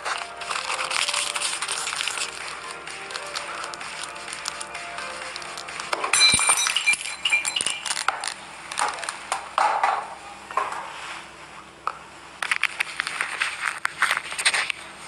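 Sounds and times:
plastic bottle crinkling: 0:00.0 - 0:06.0, 0:07.3 - 0:09.2.

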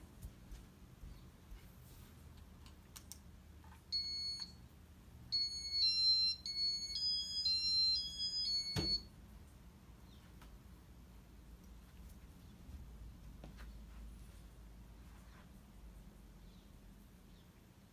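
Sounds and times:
electronic beeps: 0:05.4 - 0:09.1.

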